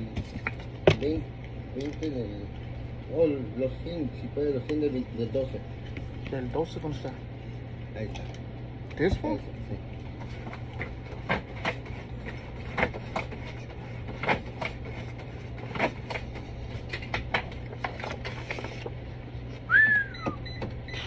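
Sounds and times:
steady low hum: 0:00.0 - 0:21.0
rising and falling whistle: 0:19.7 - 0:20.5.

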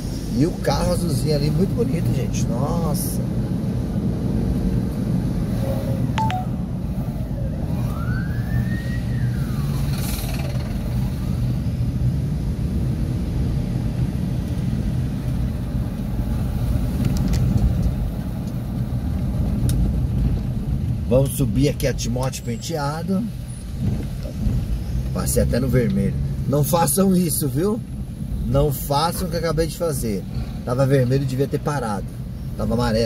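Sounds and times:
car engine and tyre noise: 0:00.0 - 0:33.0
faint rising and falling tone: 0:06.2 - 0:10.0.

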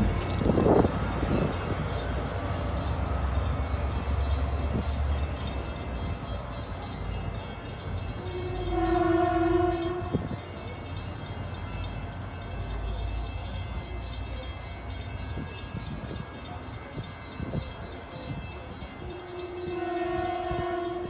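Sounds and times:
train rumbling: 0:00.0 - 0:21.0
train horn blast: 0:08.2 - 0:10.4, 0:19.1 - 0:21.0.

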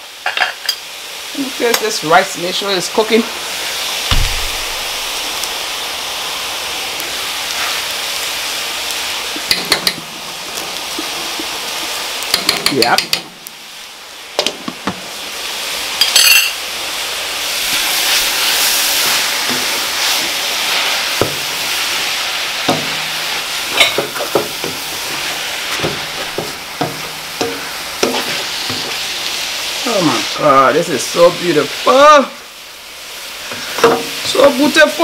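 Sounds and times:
greens sizzling in metal pot: 0:00.0 - 0:35.0
spatula scraping and knocking pot: 0:23.7 - 0:29.0.

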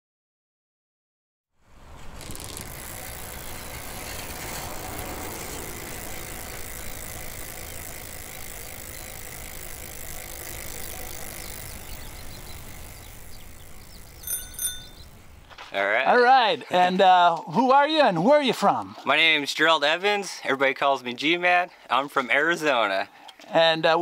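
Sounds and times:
mechanical rattling and whirring: 0:01.9 - 0:14.0.

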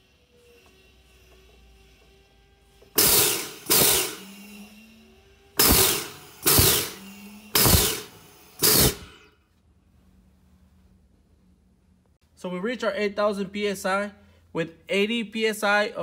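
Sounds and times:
pump exhaust air blasts: 0:02.9 - 0:04.7, 0:05.5 - 0:09.2.

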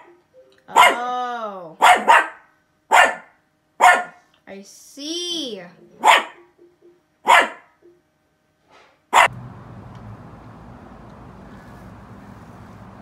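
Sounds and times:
small dog barking: 0:00.7 - 0:01.1, 0:01.8 - 0:04.2, 0:06.0 - 0:06.4, 0:07.2 - 0:07.7, 0:09.1 - 0:09.4.

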